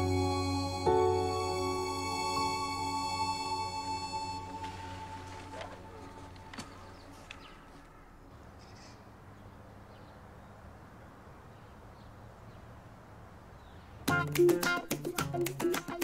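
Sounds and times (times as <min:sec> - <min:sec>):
upbeat music with percussive hits: 0:14.1 - 0:16.0.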